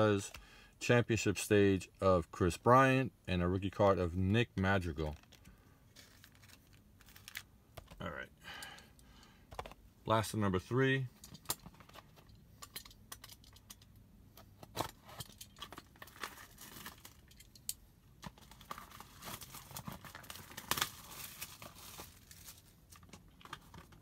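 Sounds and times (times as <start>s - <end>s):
packaging tearing and crinkling: 6.0s - 7.5s, 15.7s - 17.2s, 18.3s - 24.0s.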